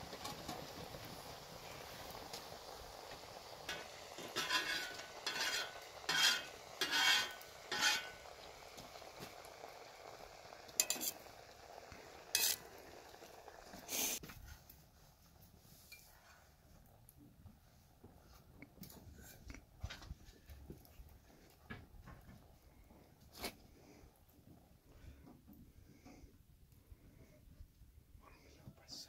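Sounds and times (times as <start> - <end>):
food sizzling in a pot: 0.0 - 14.2
utensil scraping a pot: 3.7 - 9.0, 10.5 - 11.4, 12.2 - 14.2.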